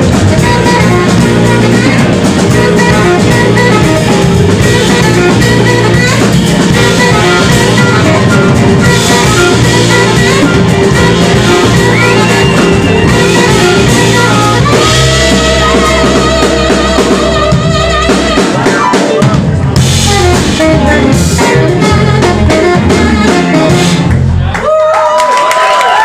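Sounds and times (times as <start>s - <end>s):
live band playing: 0.0s - 26.0s
audience whistling: 8.8s - 19.3s.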